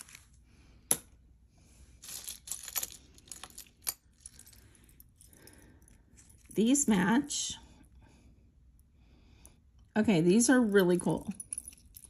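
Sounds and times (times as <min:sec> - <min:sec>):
small metallic clinks: 0:10.8 - 0:12.0.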